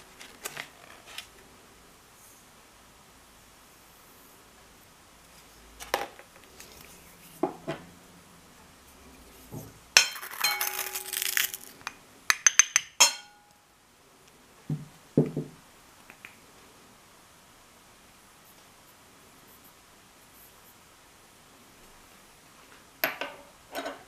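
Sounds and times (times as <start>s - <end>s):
spoon clinking on glass bowl: 10.0s - 11.2s, 12.4s - 13.5s
spoon knocking on bowl: 12.3s - 13.4s.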